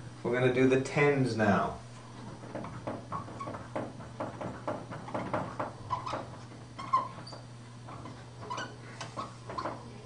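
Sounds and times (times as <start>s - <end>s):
steady low hum: 0.0s - 10.0s
marker squeaking on a whiteboard: 4.5s - 10.0s.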